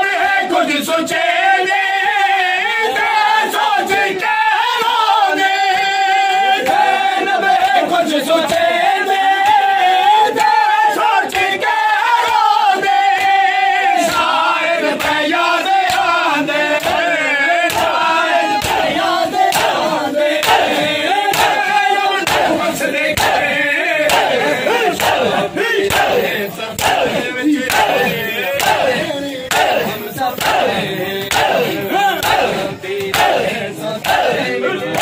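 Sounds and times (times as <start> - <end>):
crowd of men chanting: 0.0 - 35.0
hands slapping on chests: 17.6 - 18.0, 18.6 - 21.6, 24.1 - 35.0.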